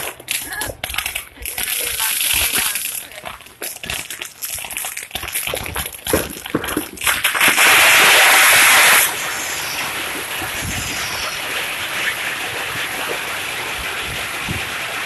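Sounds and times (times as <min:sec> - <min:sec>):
firework fountains hissing: 0:00.0 - 0:15.0
fireworks crackling pops: 0:00.0 - 0:15.0
loud rushing hiss: 0:07.4 - 0:15.0.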